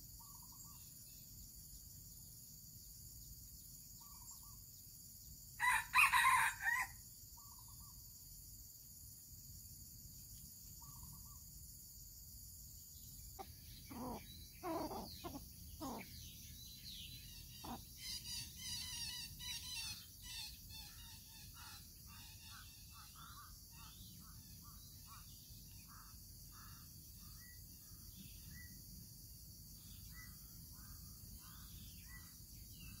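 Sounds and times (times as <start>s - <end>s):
high insect drone: 0.0s - 33.0s
rooster crowing: 5.6s - 7.0s, 13.9s - 16.0s.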